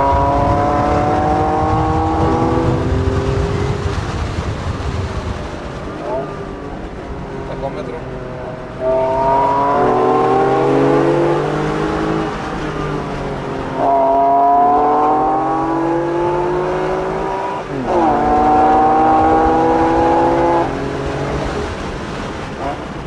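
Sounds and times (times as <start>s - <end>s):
car engine accelerating from inside cabin: 0.0s - 3.8s, 8.8s - 12.3s, 13.8s - 21.5s.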